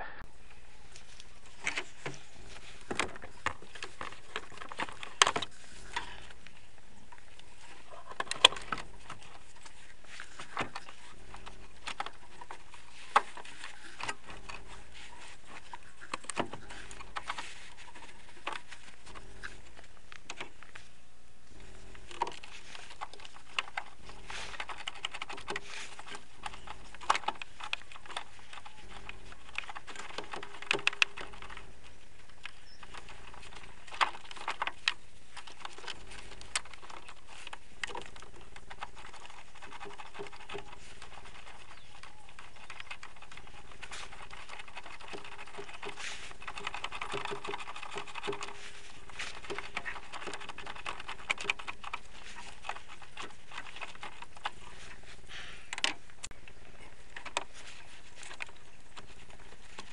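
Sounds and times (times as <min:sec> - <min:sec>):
gloved hands rustling: 0:00.4 - 0:59.9.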